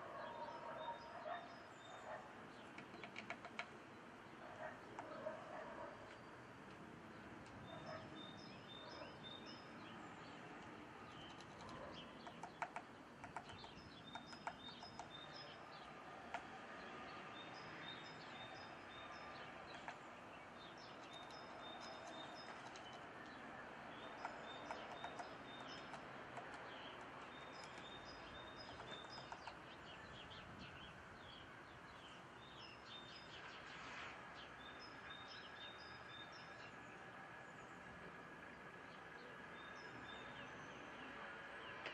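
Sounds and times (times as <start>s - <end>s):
faint songbird song: 0.0s - 41.9s
sharp ticks: 2.7s - 3.8s, 10.6s - 15.2s, 24.0s - 29.6s.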